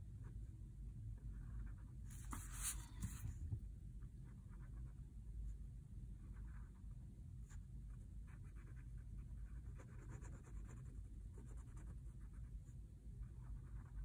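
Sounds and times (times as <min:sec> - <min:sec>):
low steady hum: 0:00.0 - 0:14.0
pen scratching on paper: 0:01.2 - 0:03.2, 0:08.3 - 0:12.5, 0:13.3 - 0:14.0.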